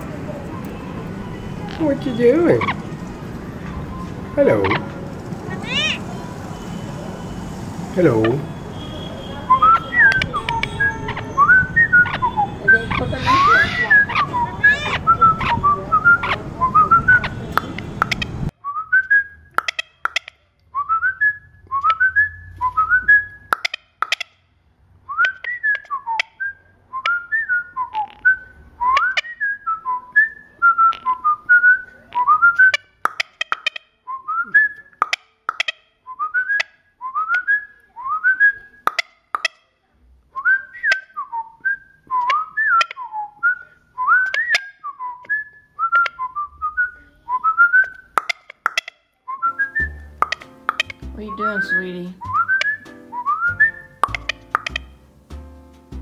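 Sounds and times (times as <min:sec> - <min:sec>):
whistling high chirp-like notes: 0:49.4 - 0:55.0.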